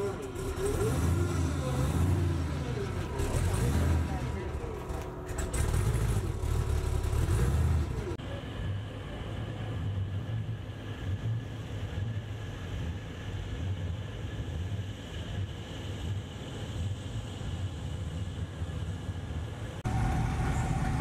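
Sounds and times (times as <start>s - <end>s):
truck engine rumbling: 0.0s - 13.6s, 19.6s - 21.0s.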